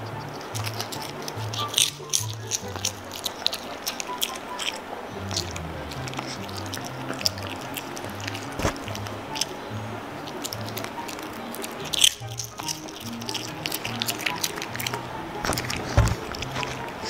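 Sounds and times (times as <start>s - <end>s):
dog crunching a biscuit: 0.0s - 17.0s
background music with bass line: 5.1s - 17.0s.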